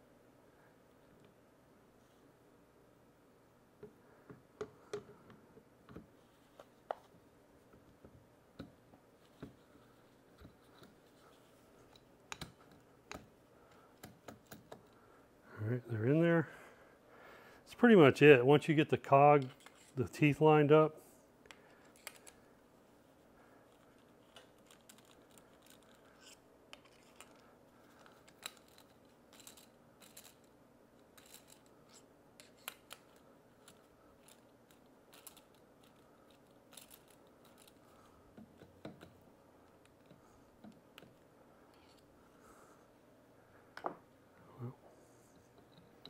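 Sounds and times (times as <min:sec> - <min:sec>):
small metallic clicks and scrapes: 0:19.4 - 0:20.0, 0:23.7 - 0:42.1.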